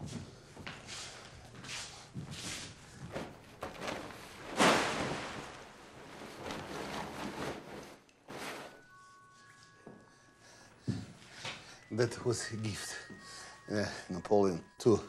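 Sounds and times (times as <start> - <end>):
plastic sheet crinkling: 3.4 - 8.9.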